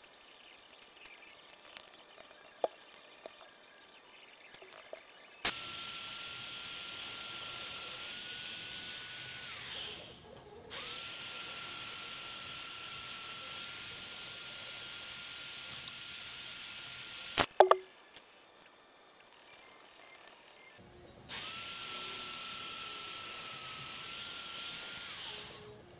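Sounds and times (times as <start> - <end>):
drill boring through steel: 5.5 - 17.4, 21.3 - 25.8
drill motor whining: 5.5 - 17.4, 21.3 - 25.8.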